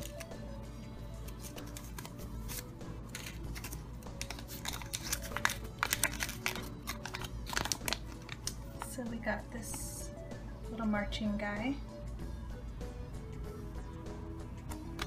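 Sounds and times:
paper crinkling: 0.0s - 0.3s, 1.2s - 8.9s.

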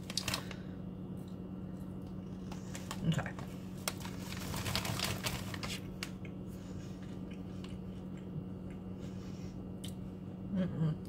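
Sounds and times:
person chewing crispy snack: 3.8s - 10.1s.

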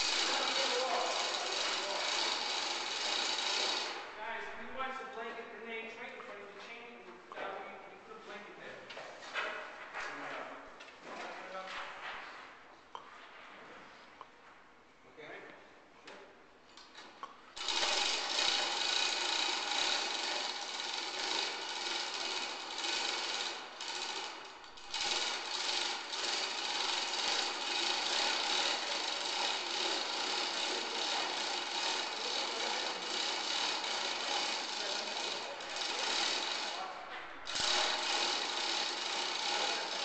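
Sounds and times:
power tool running: 0.0s - 4.2s, 17.5s - 36.8s, 37.5s - 40.0s.

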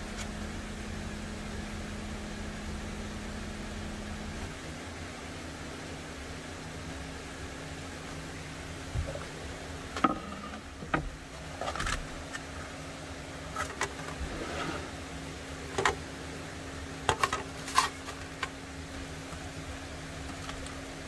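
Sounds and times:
desk fan humming: 0.0s - 21.0s.

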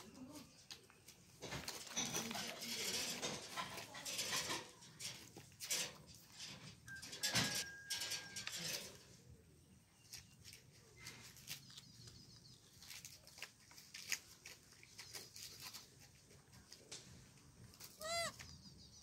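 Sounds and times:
light clicks and rustles: 0.0s - 9.2s.

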